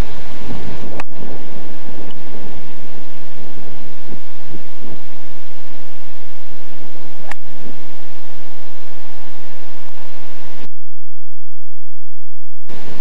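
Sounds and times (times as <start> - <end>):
loud rushing hiss: 12.7 - 13.0.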